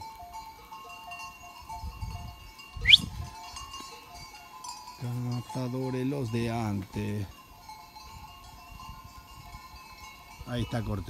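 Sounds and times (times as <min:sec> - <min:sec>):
goat bells clinking: 0:00.0 - 0:11.0
short rising whistle: 0:02.8 - 0:03.1.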